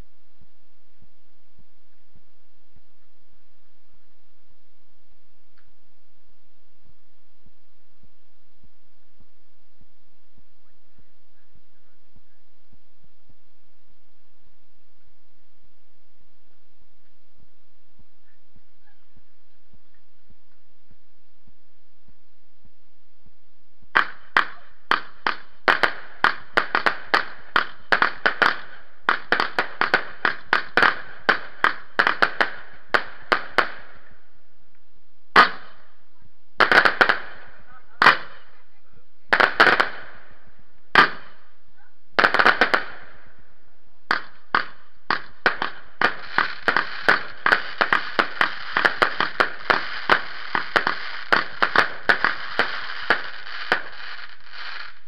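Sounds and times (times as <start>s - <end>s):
firecrackers crackling: 23.9s - 55.0s.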